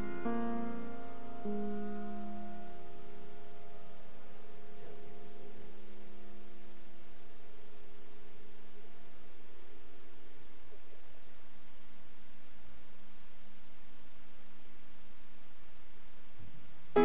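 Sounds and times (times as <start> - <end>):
piano chords ringing: 0.0 - 7.5
faint steady hum: 0.0 - 17.0.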